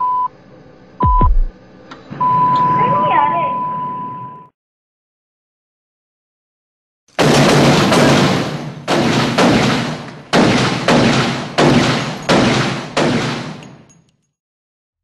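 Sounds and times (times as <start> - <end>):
heavy booming impact hits: 1.0 - 1.6.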